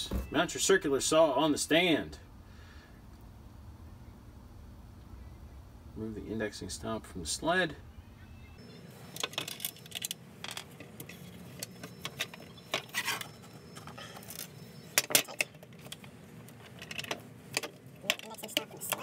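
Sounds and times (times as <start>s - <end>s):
plastic and metal parts clattering: 9.1s - 19.0s.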